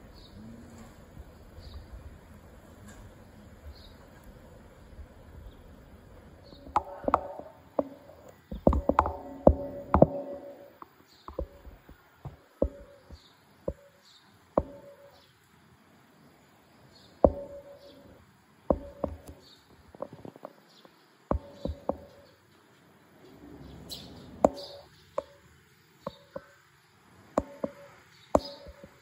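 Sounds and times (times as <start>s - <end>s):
phone handling knocks and clicks: 6.7s - 13.9s, 14.6s - 15.1s, 17.2s - 18.1s, 18.7s - 20.6s, 21.3s - 22.3s, 27.4s - 29.0s
faint high bird chirps: 16.8s - 26.7s, 27.4s - 29.0s.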